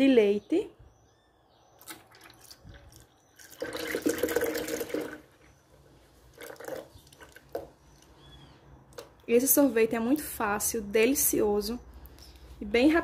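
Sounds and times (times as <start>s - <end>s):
milk pouring into blender jar: 1.8s - 5.4s, 6.4s - 7.7s.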